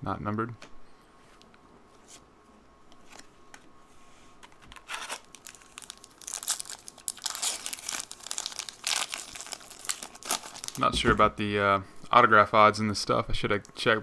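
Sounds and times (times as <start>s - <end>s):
foil wrapper crinkling and tearing: 4.7s - 10.9s.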